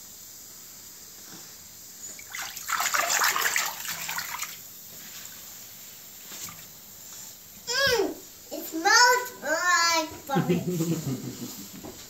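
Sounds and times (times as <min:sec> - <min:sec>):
bathwater sloshing: 0:02.0 - 0:06.9.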